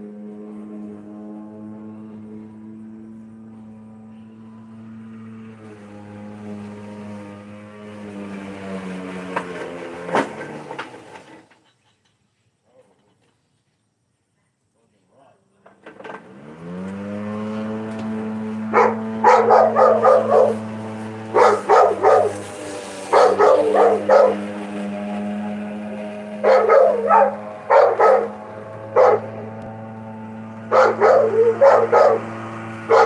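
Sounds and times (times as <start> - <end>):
electric lawnmower motor hum: 0.0 - 11.5, 15.8 - 33.0
dog barking: 18.7 - 20.6, 21.3 - 22.4, 23.1 - 24.4, 26.4 - 28.3, 29.0 - 29.3, 30.7 - 32.3.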